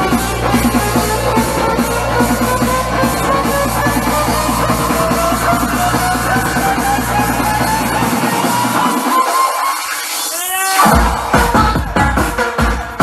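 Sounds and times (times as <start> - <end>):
music with drums and heavy bass: 0.0 - 10.2, 10.8 - 13.0
rising tone: 0.0 - 10.2.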